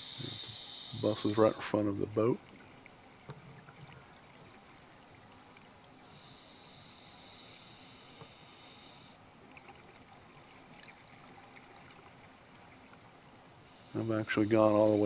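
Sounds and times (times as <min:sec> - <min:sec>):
breath hiss with high whistle: 0:00.0 - 0:01.5.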